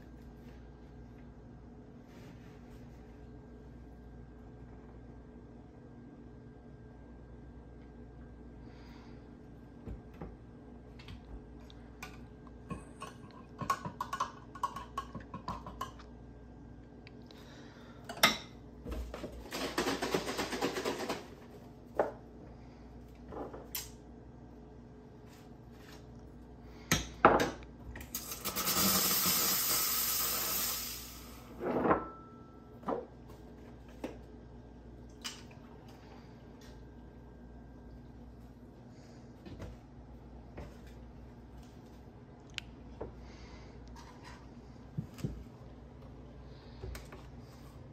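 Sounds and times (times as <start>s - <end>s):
espresso machine steam hiss: 28.2s - 31.5s.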